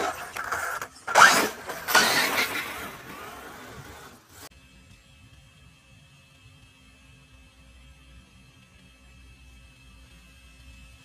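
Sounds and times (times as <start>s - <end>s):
tyres spraying dirt: 0.0s - 4.5s.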